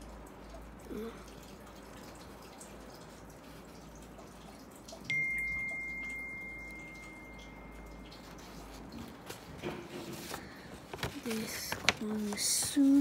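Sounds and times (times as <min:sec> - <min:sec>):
high ringing tone: 0:05.1 - 0:08.4.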